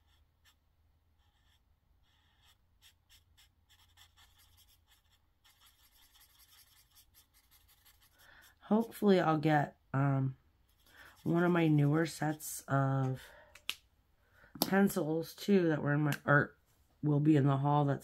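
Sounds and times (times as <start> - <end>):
markers scratching on paper: 0.0 - 0.6, 1.2 - 8.2, 10.7 - 12.5.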